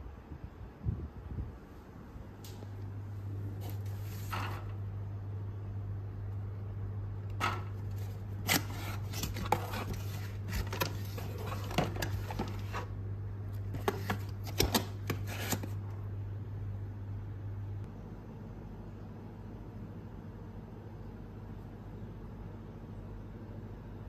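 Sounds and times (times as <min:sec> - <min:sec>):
steady low hum: 0:00.0 - 0:24.0
cardboard box opened: 0:07.9 - 0:12.9.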